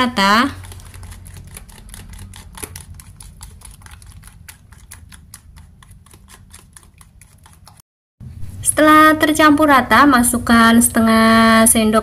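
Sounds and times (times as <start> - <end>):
fork mashing batter in plastic tub: 0.0 - 7.8.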